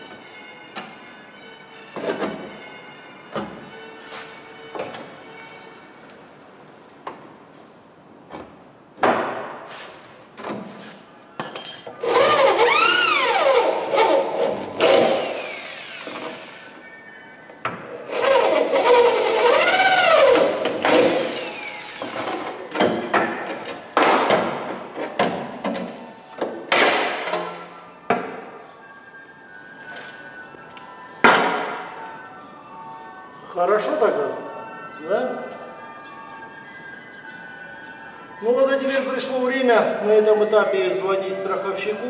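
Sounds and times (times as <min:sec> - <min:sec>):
electric drill drilling metal: 0:12.0 - 0:16.8, 0:20.9 - 0:22.3.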